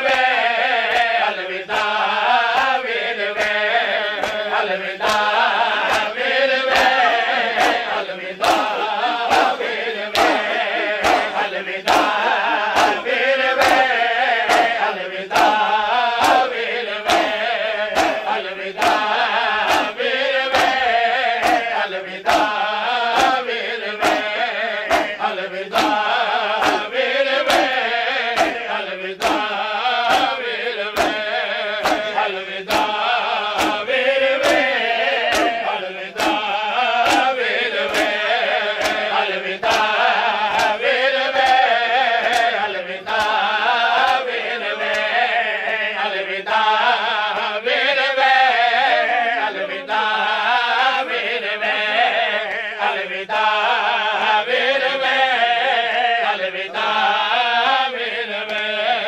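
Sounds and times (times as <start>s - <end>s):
hands slapping chests: 0.0s - 45.2s
men chanting a lament: 0.0s - 59.0s.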